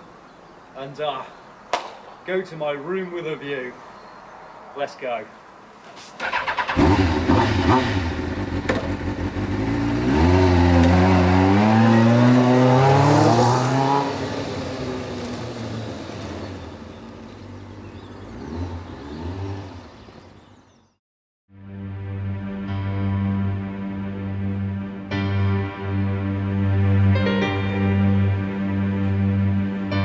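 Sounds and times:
motorcycle engine revving: 6.2 - 20.4.

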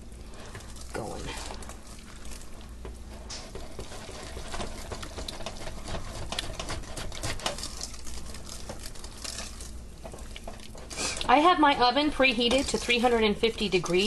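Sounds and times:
whisk scraping metal pan: 3.1 - 14.0.

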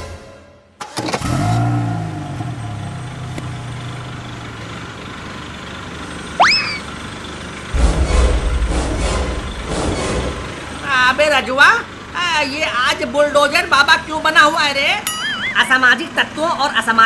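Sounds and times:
bulldozer engine starting and running: 0.8 - 16.7
rising whistle-like sweep: 6.4 - 6.9.

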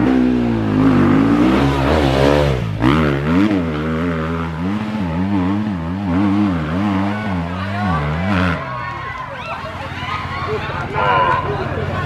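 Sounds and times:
dirt bike engine revving: 0.0 - 9.0.

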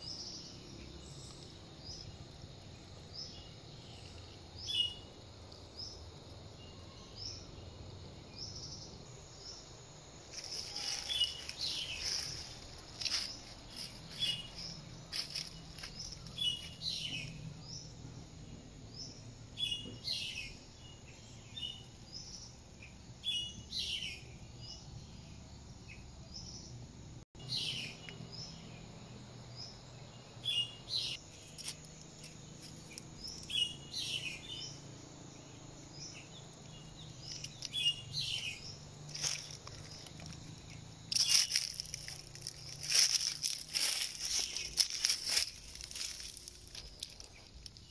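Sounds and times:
birds chirping and calling: 10.3 - 18.0, 29.6 - 47.9.

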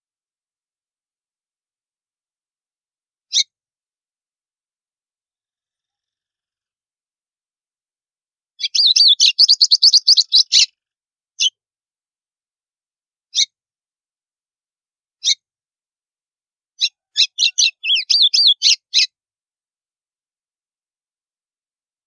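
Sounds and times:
bird singing: 8.6 - 10.7, 16.8 - 19.1.

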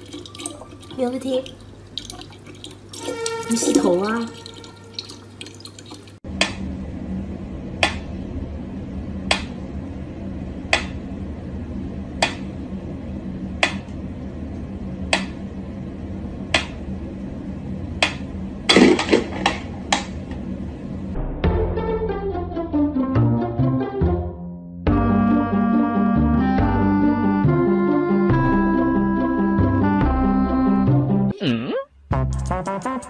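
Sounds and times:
steady low hum: 6.1 - 21.4.

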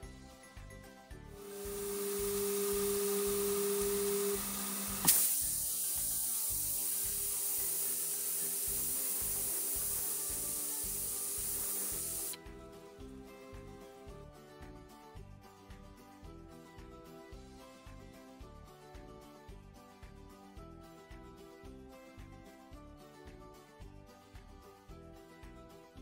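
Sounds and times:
steam hissing: 1.4 - 12.4
pressure cooker valve click: 1.7 - 12.4.

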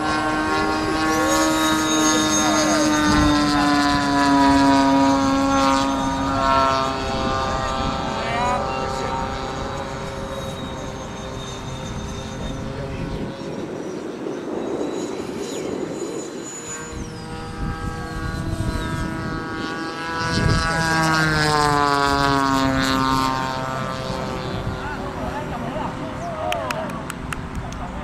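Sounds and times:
electric ducted fans whining: 0.0 - 28.0.

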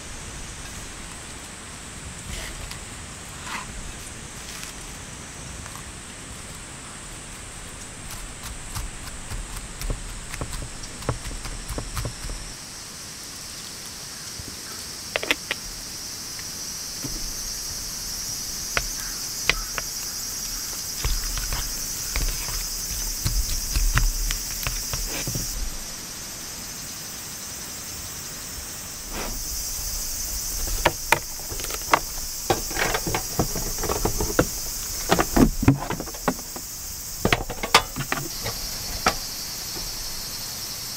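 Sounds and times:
insect chirring: 5.6 - 40.9
plastic clattering: 30.5 - 39.9.

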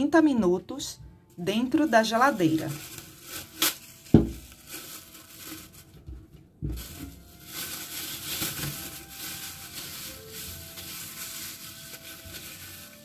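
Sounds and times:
cling film crinkling: 1.8 - 6.1, 6.7 - 13.0
thump: 6.1 - 6.9.

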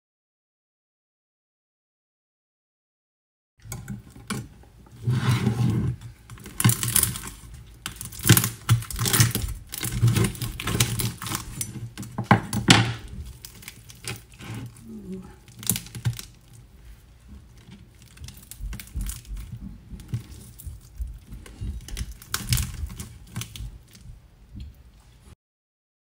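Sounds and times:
hands tearing crisp skin: 6.3 - 16.6, 17.6 - 24.0.

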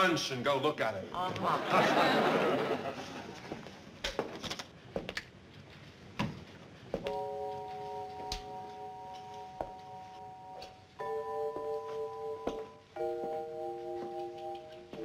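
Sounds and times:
soft held chords: 7.0 - 15.0.

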